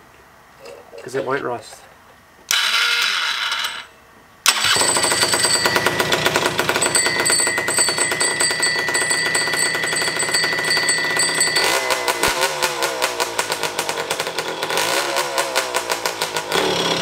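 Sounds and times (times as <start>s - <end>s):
electric starter: 2.5s - 17.0s
scooter engine running: 4.5s - 17.0s.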